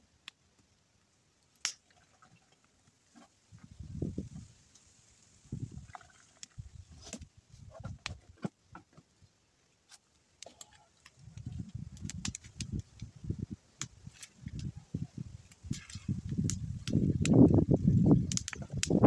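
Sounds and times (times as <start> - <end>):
twigs crackling: 9.8 - 19.0.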